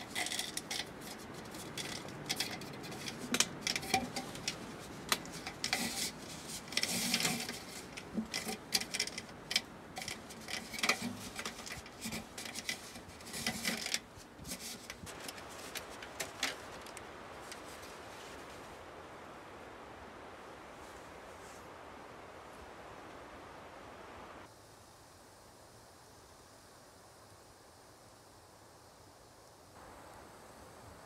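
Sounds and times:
aluminium duct crinkling: 0.0 - 18.8.

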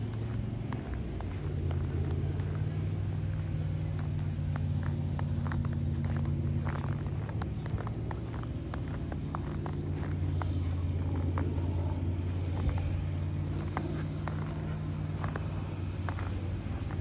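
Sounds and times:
low mechanical hum: 0.0 - 17.0
paws crunching in snow: 0.0 - 17.0.

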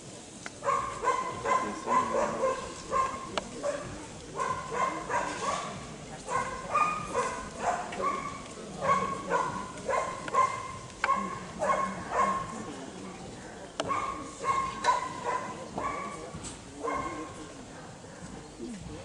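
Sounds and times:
dog barking: 0.6 - 12.7, 13.8 - 16.2, 16.8 - 17.4.

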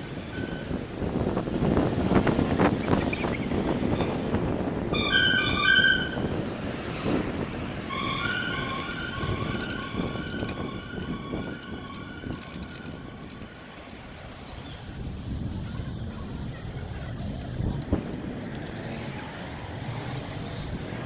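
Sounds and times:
city street traffic: 0.0 - 21.0
two-tone siren: 5.0 - 6.3, 7.9 - 12.4.

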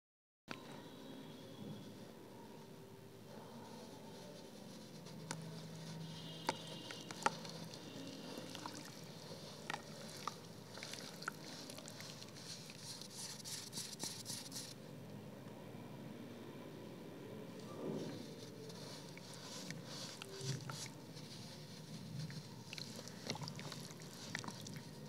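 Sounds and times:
crumbs pattering into water: 6.5 - 13.1, 21.9 - 25.0.

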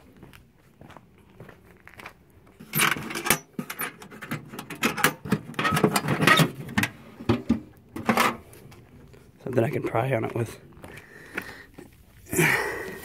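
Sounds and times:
loose tools clattering: 2.6 - 8.4
toolbox latches and lid clanking: 2.6 - 8.4.

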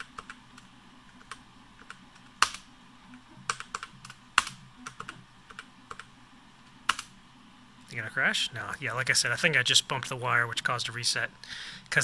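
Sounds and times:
keyboard typing: 0.0 - 6.1, 6.8 - 7.1.

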